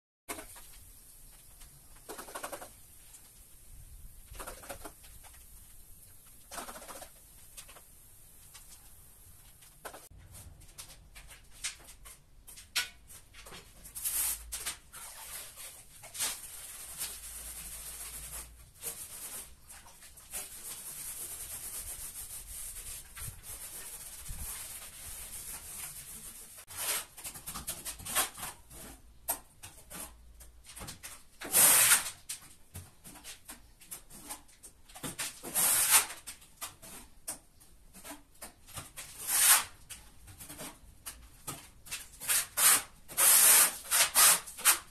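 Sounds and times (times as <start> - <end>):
sponge scrubbing a tile: 14.1 - 27.2.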